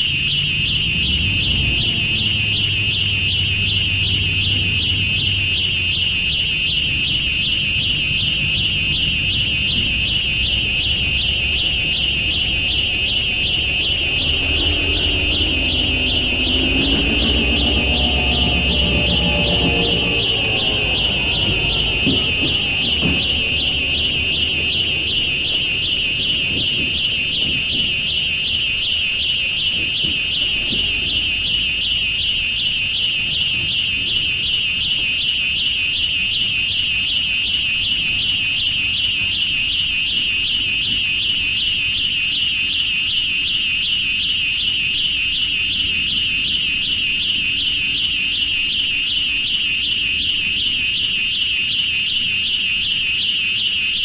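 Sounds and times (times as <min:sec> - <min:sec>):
railroad rumble: 0:00.0 - 0:35.1
high-pitched warbling alarm tone: 0:00.0 - 0:54.0.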